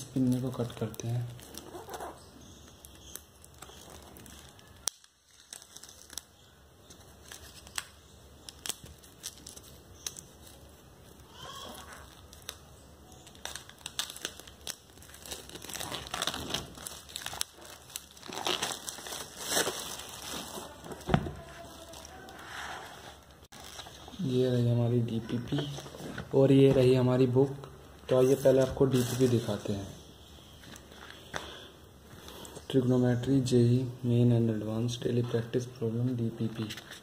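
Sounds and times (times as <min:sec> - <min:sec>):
plastic wrap crinkling: 0:00.0 - 0:32.6.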